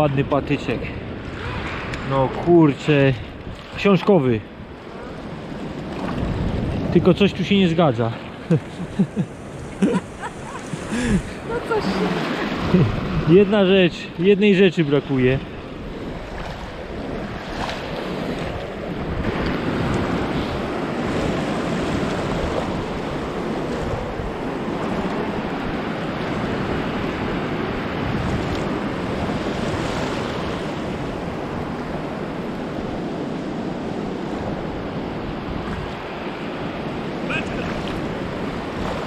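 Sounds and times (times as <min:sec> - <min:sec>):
sea surf washing on shore: 0:00.0 - 0:39.0
wind on microphone: 0:04.6 - 0:07.6, 0:15.4 - 0:39.0.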